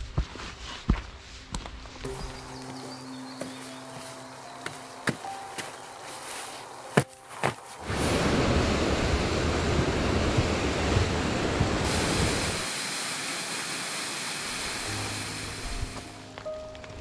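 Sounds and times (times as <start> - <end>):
footfalls on wooden steps: 4.6 - 5.8
waterfall rushing: 7.8 - 16.2.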